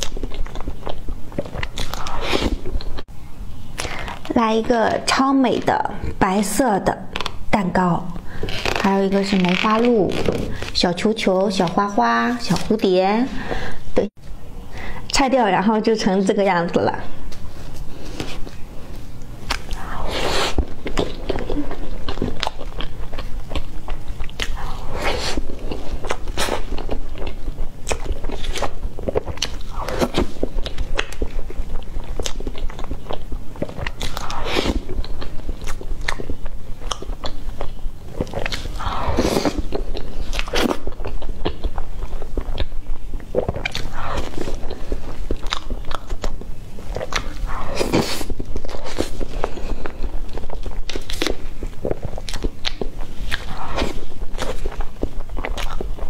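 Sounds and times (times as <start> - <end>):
cake being chewed: 0.0 - 3.1, 17.3 - 56.0.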